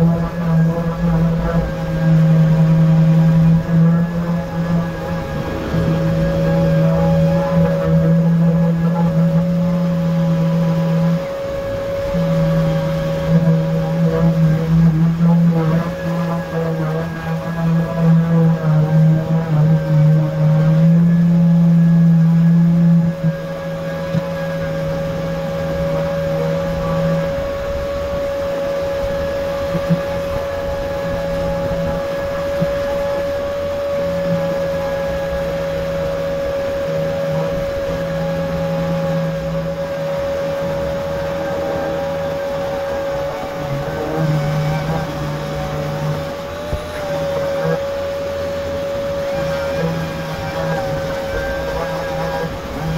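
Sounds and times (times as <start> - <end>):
high whine: 0.0 - 52.9
orbital sander low hum: 0.0 - 52.9
power sander running: 36.2 - 52.9.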